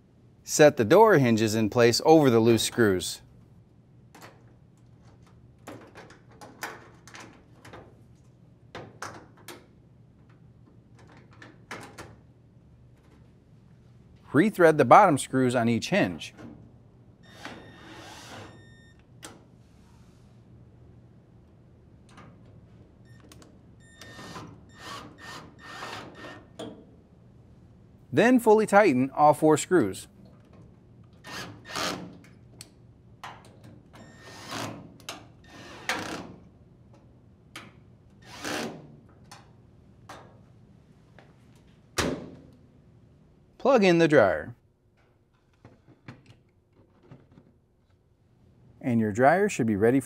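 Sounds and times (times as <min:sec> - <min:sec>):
cordless drill driving screws: 0:24.1 - 0:26.4, 0:38.2 - 0:38.8.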